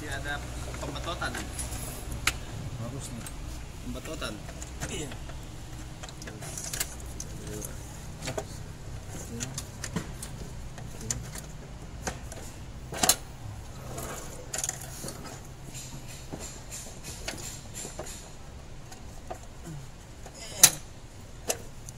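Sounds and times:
low steady hum: 0.0 - 15.8.

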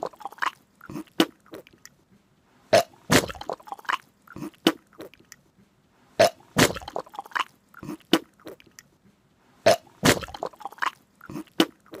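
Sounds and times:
person making vocal noises: 0.0 - 1.7, 3.1 - 5.2, 6.6 - 8.7, 9.7 - 12.0.

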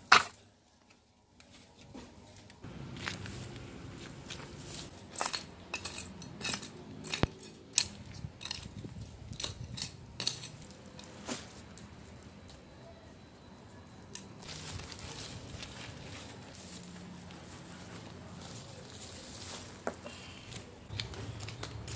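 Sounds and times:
soft rustle: 0.6 - 5.0, 14.4 - 20.8
debris clicks knocks and scrapes: 4.7 - 11.6.

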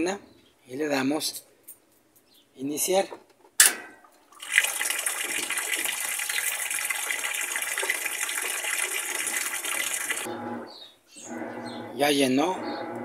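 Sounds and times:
water spraying into washing machine: 4.3 - 10.3.

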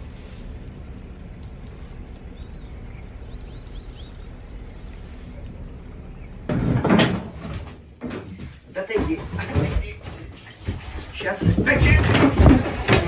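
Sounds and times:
steady low rumble: 0.0 - 6.5.

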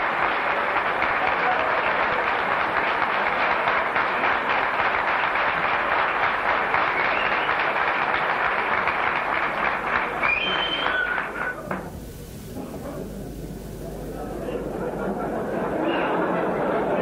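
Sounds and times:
audience applauding: 0.0 - 11.9.

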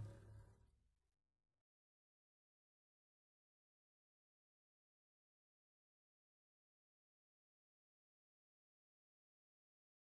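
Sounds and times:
song music: 0.0 - 0.3.

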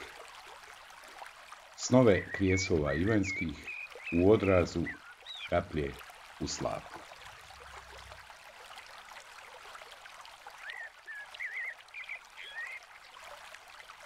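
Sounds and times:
flowing water: 0.0 - 14.0
bird warbling chirps: 2.0 - 5.7, 10.6 - 12.8.

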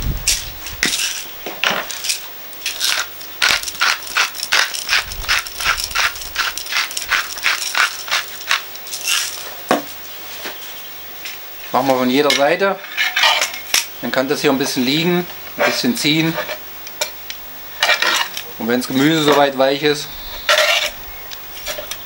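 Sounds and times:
pepper mill grinding: 0.2 - 9.5, 17.8 - 22.0.

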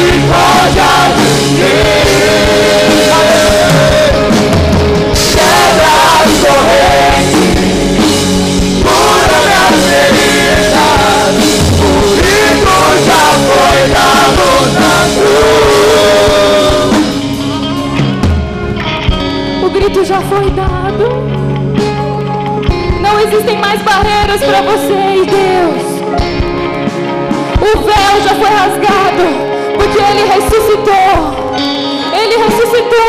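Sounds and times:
people singing into microphones: 0.0 - 17.6
drums: 0.0 - 33.0
keyboard: 0.0 - 33.0
live rock band playing: 0.0 - 33.0.

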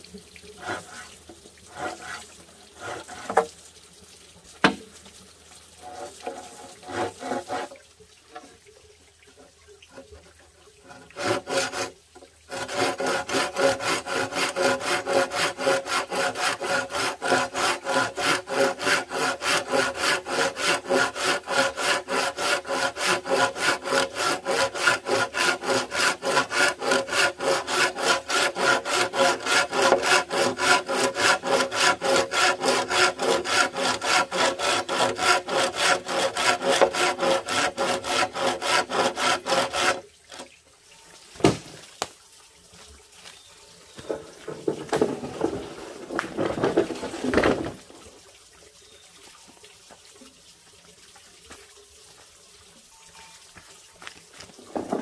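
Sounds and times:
hand saw cutting wood: 0.6 - 3.5, 5.8 - 7.8, 9.9 - 40.5, 44.0 - 47.8, 54.4 - 55.0.

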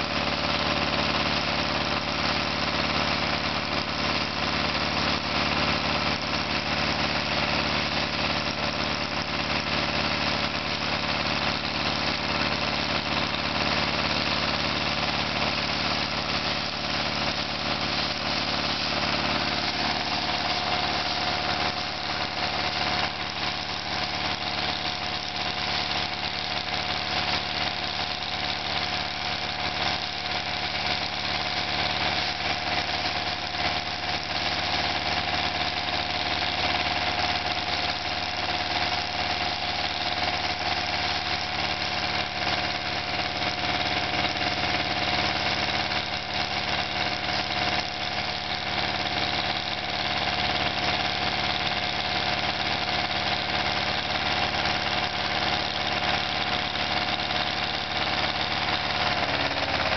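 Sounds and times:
drilling rig machinery: 0.0 - 59.9
steady high whine: 13.3 - 25.3.

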